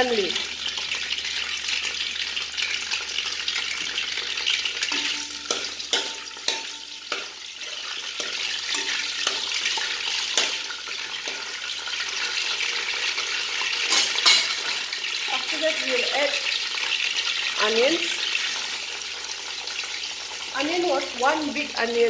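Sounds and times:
spices sizzling in hot oil: 0.0 - 22.0
spoon tapping and scraping pan: 4.8 - 12.0, 13.8 - 14.9.

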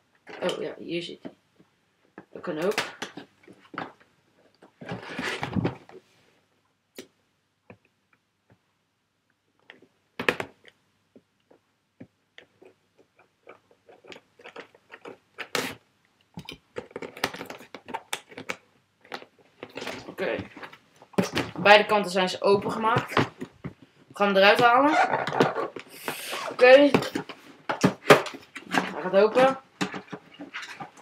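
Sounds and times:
cardboard rustling and scraping: 4.7 - 6.1, 24.7 - 31.0.

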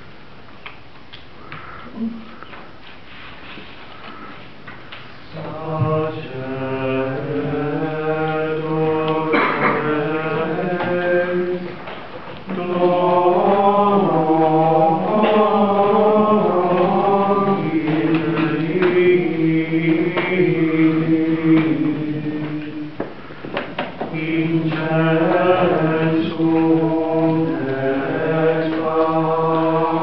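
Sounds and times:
chant sung in single melodic line: 5.2 - 11.9, 12.5 - 23.0, 24.0 - 30.0.

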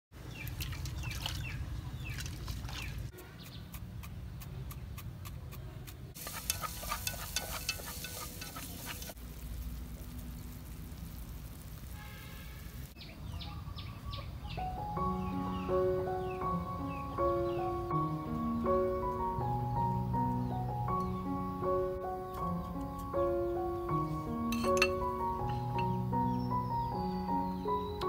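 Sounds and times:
birds chirping: 0.2 - 9.2, 12.9 - 28.0
food sizzling in a pot: 6.2 - 13.0.

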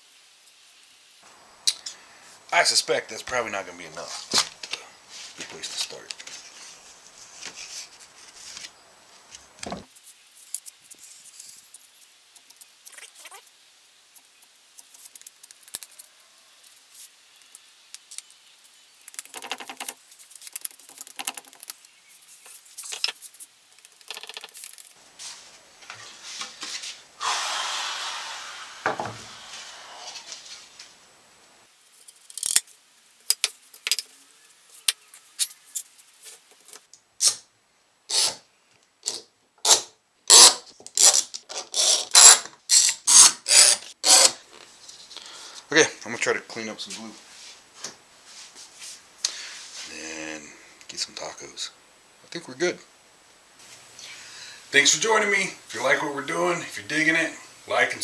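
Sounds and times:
wooden parts handled: 19.0 - 25.0.

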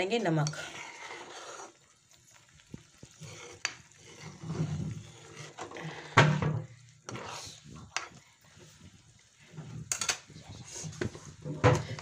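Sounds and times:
spoon stirring thick curry: 0.1 - 12.0.

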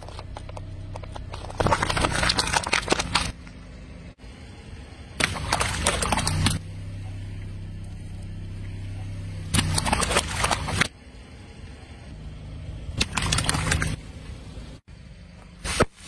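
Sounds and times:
water balloons bursting: 0.0 - 3.4, 5.2 - 6.6, 9.5 - 10.9
car tyre rolling on asphalt: 0.0 - 10.2
car engine humming: 0.0 - 15.6.

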